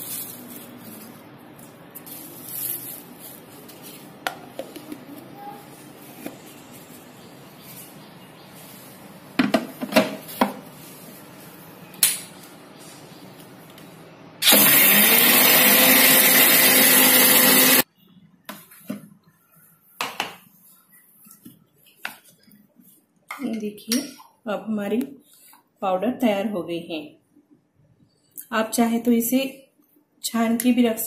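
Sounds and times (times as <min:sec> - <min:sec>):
mixer grinder running: 0:14.4 - 0:17.8.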